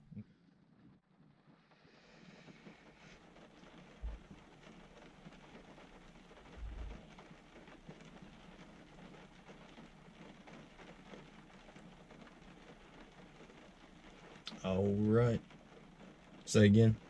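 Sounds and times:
light rain on truck roof: 0.0s - 17.0s
low thump: 6.6s - 7.0s.

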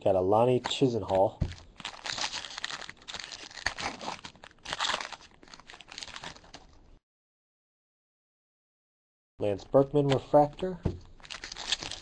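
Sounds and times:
wrapper crinkling and tearing: 0.6s - 6.9s, 11.1s - 12.0s.

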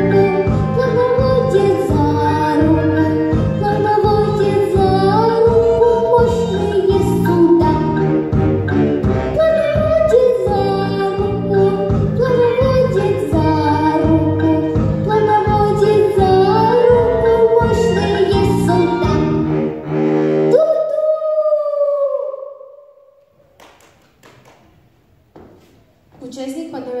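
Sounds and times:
girl singing into microphone: 0.0s - 8.0s, 9.4s - 19.4s, 20.5s - 22.7s.

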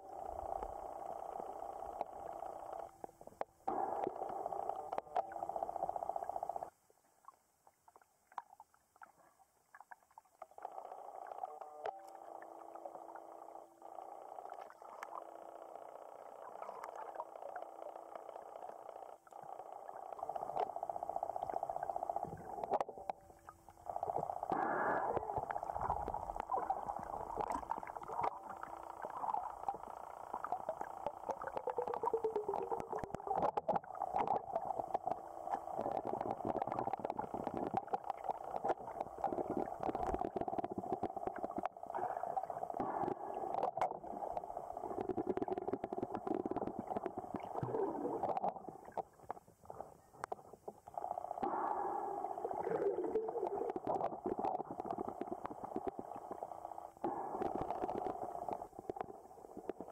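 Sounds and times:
faint steady hum: 0.0s - 59.9s
small underwater clicks: 0.1s - 59.9s
gurgling underwater noise: 8.9s - 59.9s.

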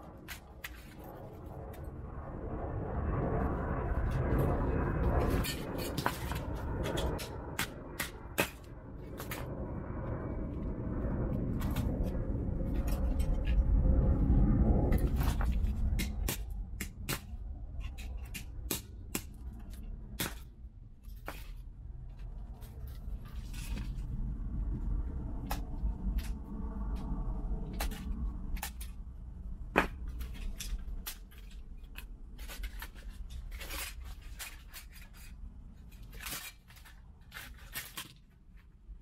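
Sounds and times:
low rumble: 0.0s - 36.2s
plastic parts clicking and clattering: 30.2s - 38.4s.

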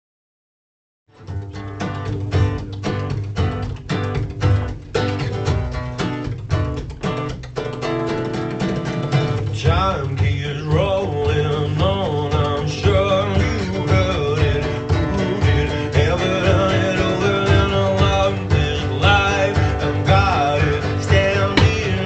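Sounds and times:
acoustic guitar strumming: 1.1s - 22.0s
frame drum beat: 1.2s - 22.0s
man singing: 9.5s - 22.0s.

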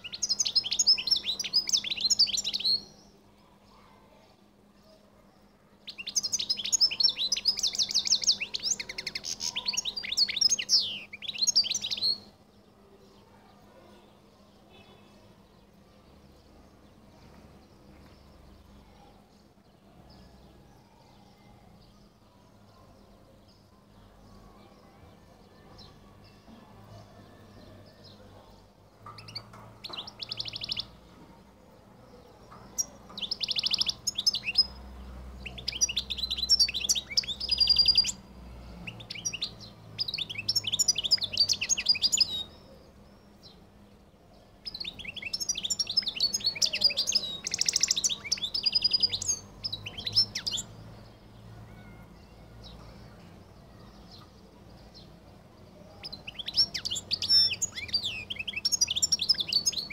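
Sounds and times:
goldfinch singing: 0.0s - 3.0s, 5.8s - 12.3s, 29.0s - 31.0s, 32.6s - 34.8s, 35.4s - 38.2s, 38.8s - 42.7s, 44.6s - 51.0s, 56.0s - 59.9s.

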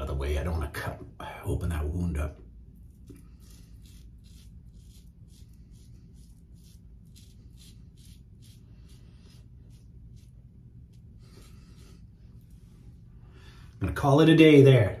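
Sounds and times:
razor scraping stubble: 2.8s - 12.6s.

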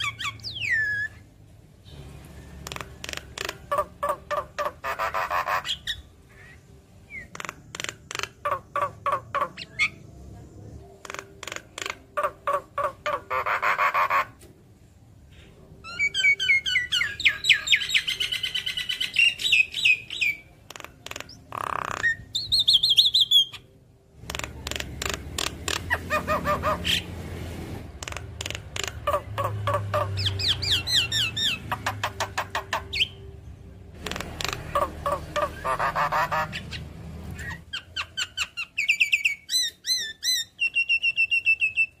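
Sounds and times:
bird clicking chatter: 2.6s - 3.8s, 7.3s - 8.6s, 11.0s - 12.1s, 20.7s - 22.1s, 24.2s - 25.9s, 28.0s - 29.1s.

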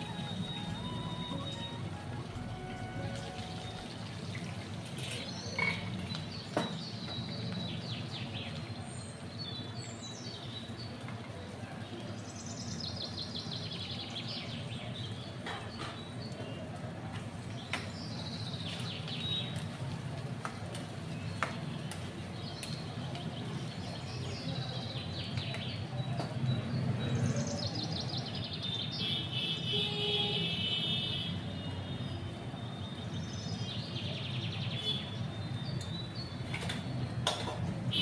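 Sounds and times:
small birds chirping: 11.7s - 19.8s, 20.4s - 30.1s, 31.6s - 37.2s.

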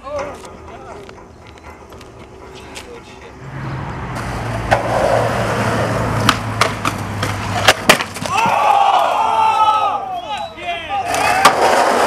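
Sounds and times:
skateboard rolling on concrete: 0.0s - 12.0s
skateboard clacking on metal rail: 4.2s - 8.4s
people shouting: 8.2s - 11.8s.

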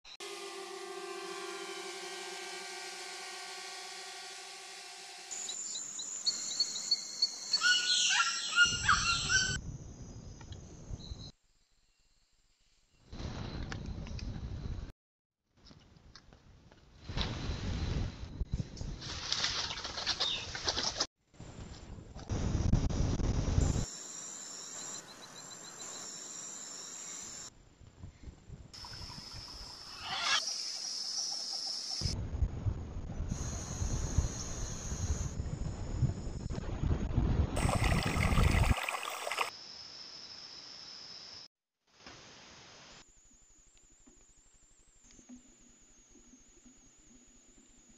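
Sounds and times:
steady high tone: 0.1s - 6.0s
rainforest birds calling: 5.7s - 9.6s
insects buzzing: 23.8s - 27.5s.

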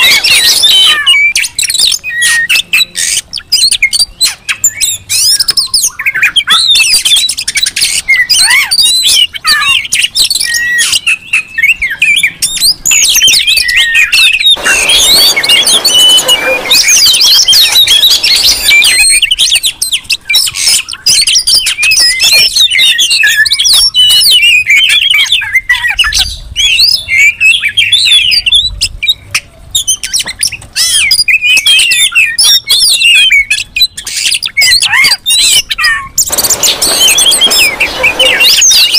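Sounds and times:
magpie-robins singing and calling: 0.0s - 38.9s
harsh hissing rasp: 14.6s - 19.1s, 36.3s - 38.9s.

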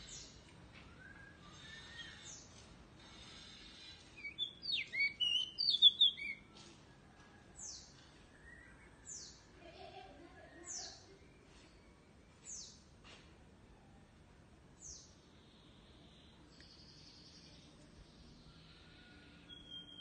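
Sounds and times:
bird singing whistled notes: 0.0s - 2.4s, 3.8s - 6.5s, 7.7s - 9.4s, 15.7s - 20.0s.

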